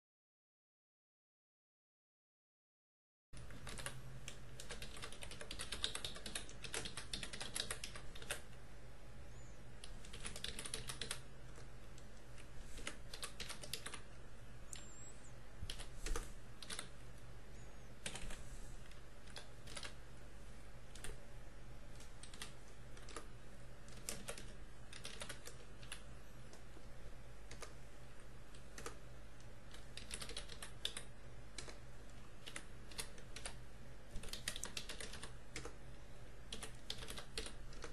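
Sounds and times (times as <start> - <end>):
computer keyboard typing: 3.4 - 8.6, 9.8 - 14.1, 14.7 - 17.0, 18.0 - 20.0, 20.9 - 21.2, 21.9 - 26.8, 27.4 - 27.9, 28.5 - 35.8, 36.5 - 37.9
steady low hum: 3.4 - 37.9.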